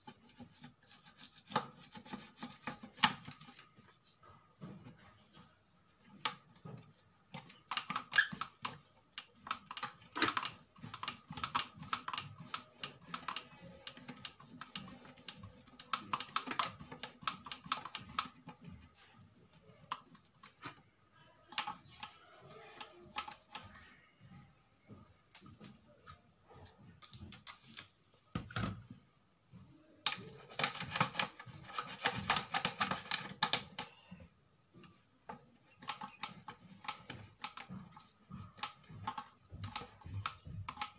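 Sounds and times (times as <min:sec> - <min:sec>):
toothbrush scrubbing plastic: 0:00.0 - 0:04.3, 0:07.3 - 0:20.7, 0:21.4 - 0:23.8, 0:30.1 - 0:34.0, 0:34.8 - 0:40.9.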